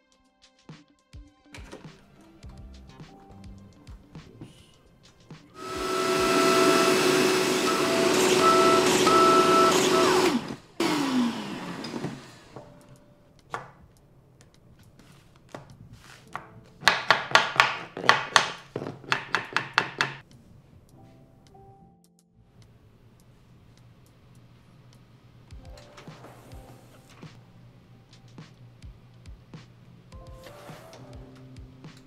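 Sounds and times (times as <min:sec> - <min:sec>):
biscuit joiner running: 0:05.6 - 0:12.6
shop vacuum running: 0:05.6 - 0:12.8.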